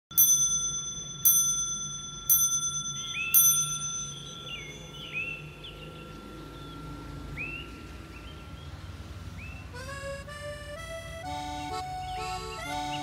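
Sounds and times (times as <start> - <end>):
mantel clock striking: 0.1 - 9.1
faint background music: 3.0 - 13.0.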